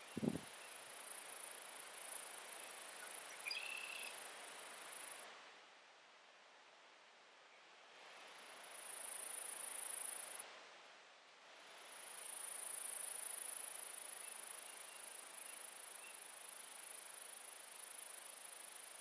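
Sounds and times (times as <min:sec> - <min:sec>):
insect high-pitched trill: 0:00.0 - 0:05.2, 0:08.3 - 0:10.4, 0:11.8 - 0:19.0
faint background hiss: 0:00.0 - 0:19.0.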